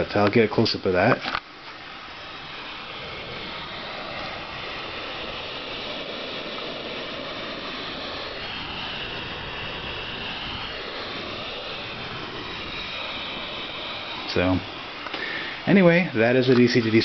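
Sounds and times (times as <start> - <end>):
electrical converter hissing: 0.0 - 17.0.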